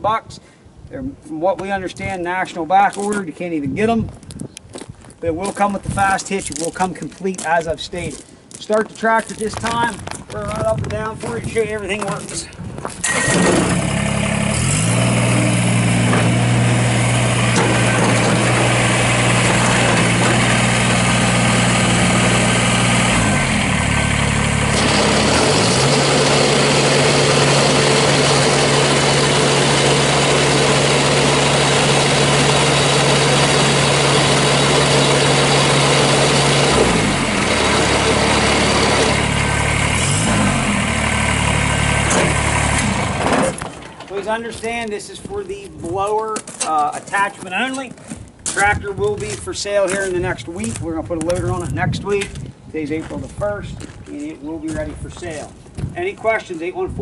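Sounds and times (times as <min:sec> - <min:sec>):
tractor diesel engine running: 0:13.0 - 0:44.9.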